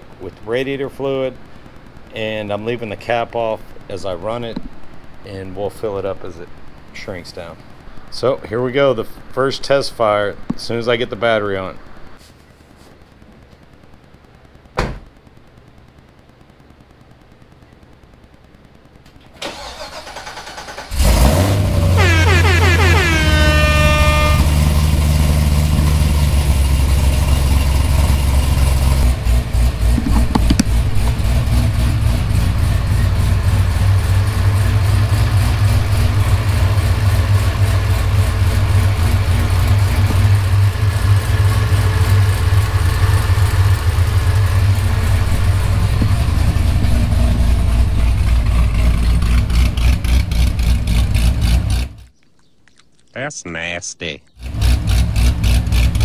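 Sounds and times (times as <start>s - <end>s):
engine whine: 19.0s - 52.1s, 54.4s - 56.0s
car engine cranking and starting: 19.3s - 52.1s, 54.4s - 56.0s
car engine idling: 19.5s - 52.1s, 54.4s - 56.0s.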